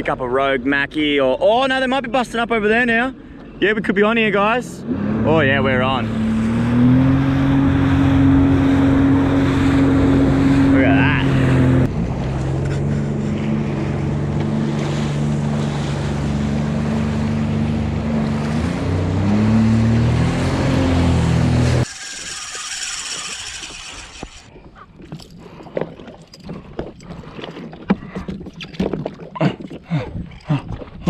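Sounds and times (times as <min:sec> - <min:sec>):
jet ski engine running: 0:05.1 - 0:24.5
water sloshing and splashing: 0:06.4 - 0:31.0.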